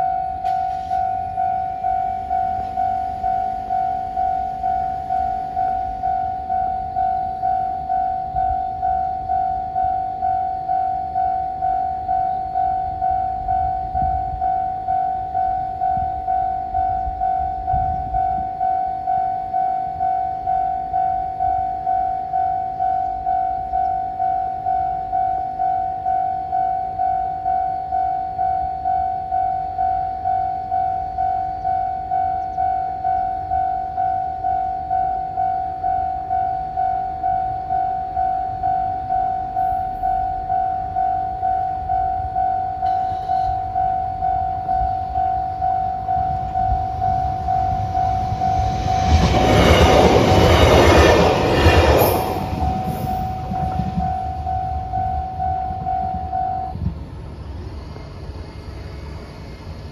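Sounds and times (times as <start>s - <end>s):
train wheels passing: 0.0s - 6.5s, 37.6s - 59.9s
level crossing bell ringing: 0.0s - 48.8s.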